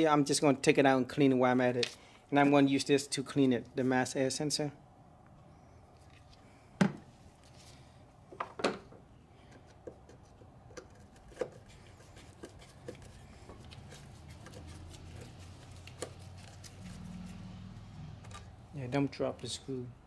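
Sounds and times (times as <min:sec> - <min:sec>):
hand tools clicking and scraping: 0:09.4 - 0:17.1.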